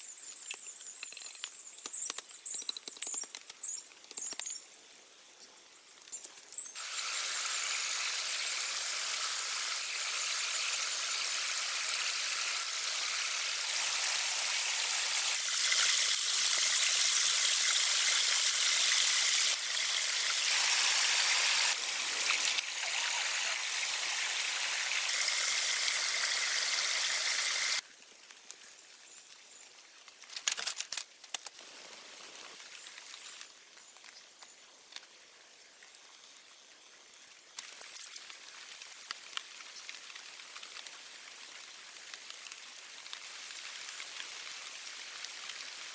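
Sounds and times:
stream water rushing over rocks: 6.8s - 27.8s.

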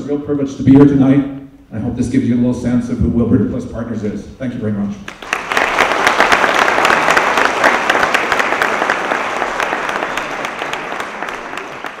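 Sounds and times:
audience applauding: 5.1s - 12.0s.

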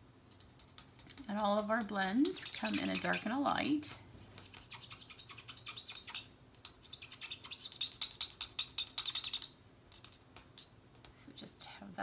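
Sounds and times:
marker scratching on card: 0.3s - 3.3s, 4.3s - 10.2s.

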